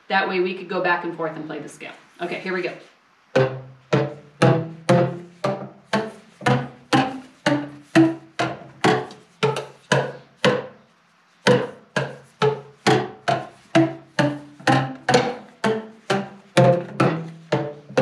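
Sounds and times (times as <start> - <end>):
boomwhacker tubes struck: 3.4 - 10.8, 11.5 - 18.0.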